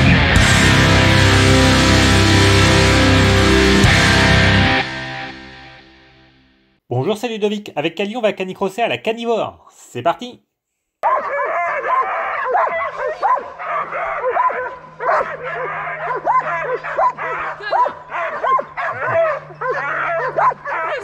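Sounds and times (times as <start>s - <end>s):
dogs yelping and barking: 11.0s - 21.0s.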